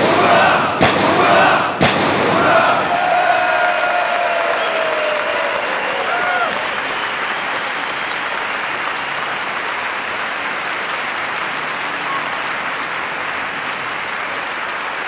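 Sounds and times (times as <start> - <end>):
crowd applauding: 2.3 - 15.0.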